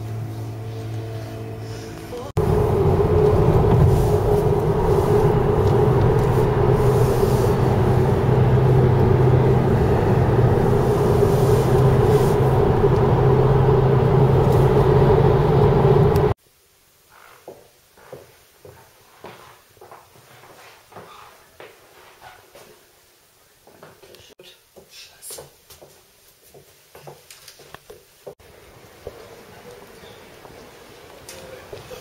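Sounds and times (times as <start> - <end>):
car cabin engine and tyre drone: 2.3 - 16.4.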